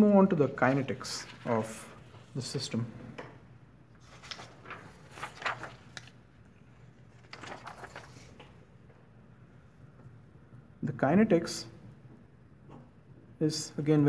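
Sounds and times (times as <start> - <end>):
paper rustling on a desk: 0.0 - 2.8, 3.9 - 8.7.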